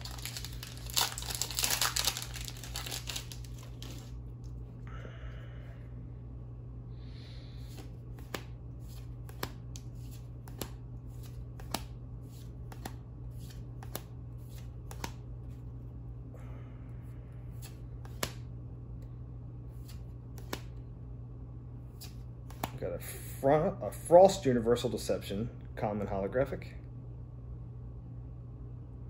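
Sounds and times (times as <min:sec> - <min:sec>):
trading cards snapping: 0:00.0 - 0:04.1, 0:07.7 - 0:15.2, 0:17.6 - 0:18.5, 0:19.8 - 0:20.8, 0:21.9 - 0:22.8
steady low hum: 0:00.0 - 0:29.0.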